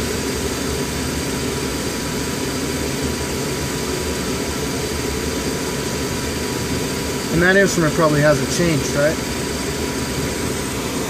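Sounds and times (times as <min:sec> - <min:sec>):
machinery drone: 0:00.0 - 0:11.0.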